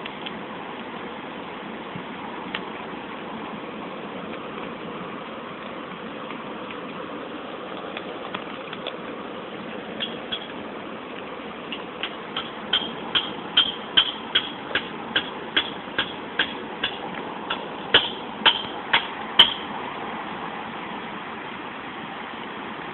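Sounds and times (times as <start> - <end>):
steady background hum: 0.0 - 21.2
sharp evenly spaced clicks: 11.7 - 19.6.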